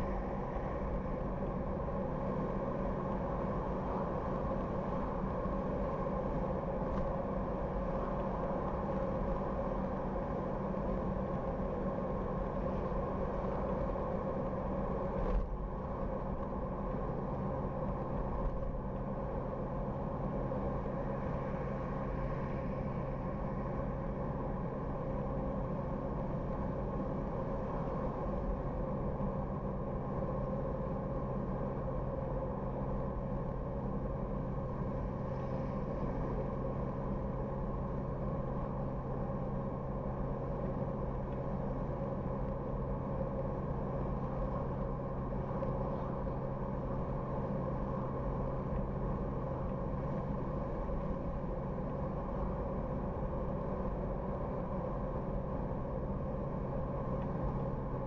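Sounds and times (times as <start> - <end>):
car engine hum: 0.0 - 58.0.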